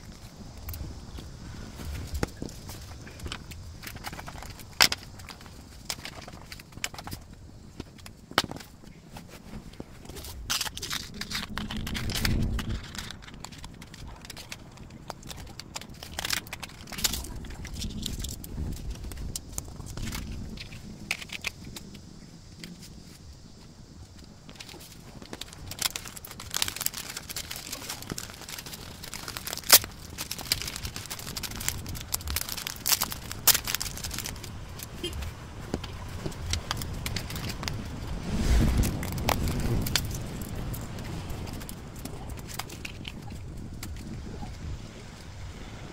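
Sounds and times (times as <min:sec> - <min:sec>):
plastic packaging crinkling: 0:09.4 - 0:21.9, 0:24.5 - 0:44.1
paper card rustling: 0:24.6 - 0:40.7.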